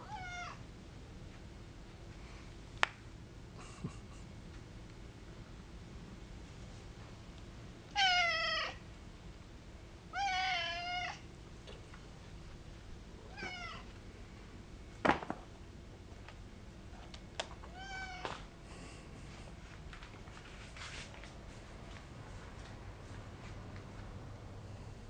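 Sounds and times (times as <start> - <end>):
cats meowing: 7.9 - 8.8, 10.1 - 11.2, 13.3 - 13.9, 17.7 - 18.4.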